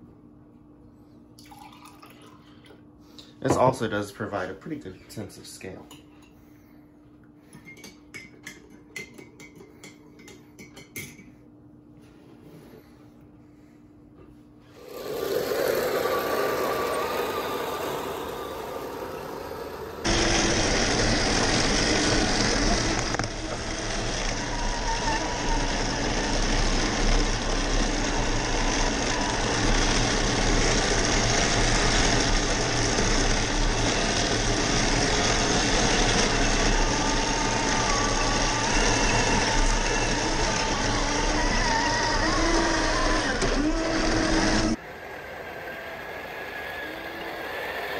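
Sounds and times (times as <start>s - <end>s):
hiss: 14.8s - 20.2s
toy tank motors whirring: 14.8s - 44.8s
engine sound effect: 14.8s - 47.9s.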